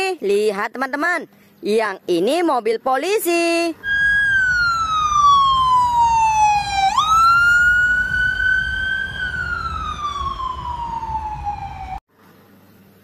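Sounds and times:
traffic rumble: 3.2s - 13.0s
police siren wailing: 3.8s - 12.0s.

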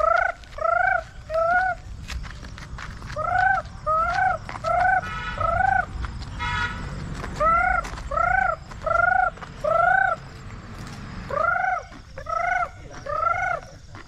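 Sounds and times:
girl imitating peacock call: 0.0s - 1.8s, 11.3s - 13.6s.

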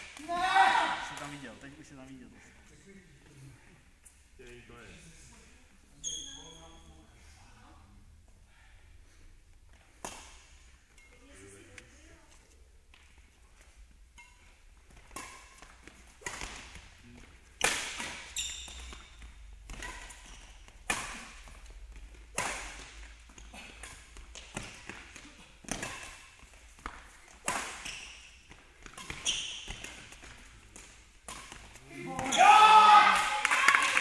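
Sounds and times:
shoe squeaks on court floor: 5.9s - 7.0s, 17.6s - 21.3s, 27.4s - 30.2s
rackets hitting shuttlecock: 10.0s - 11.1s, 14.1s - 16.9s, 17.5s - 33.5s.

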